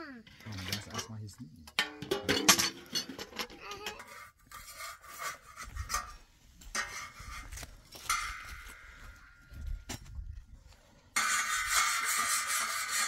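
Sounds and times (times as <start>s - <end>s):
glasses and metal tray clinking: 1.8s - 3.9s.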